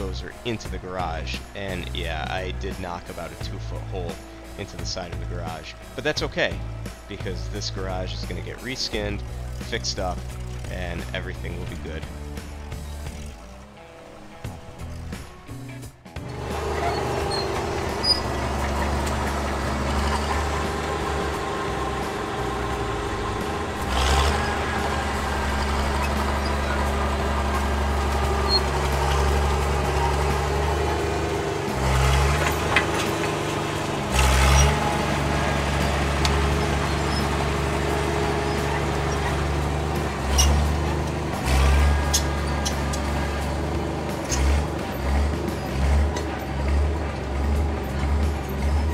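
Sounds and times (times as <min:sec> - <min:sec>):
bulldozer diesel engine running: 0:00.0 - 0:48.9.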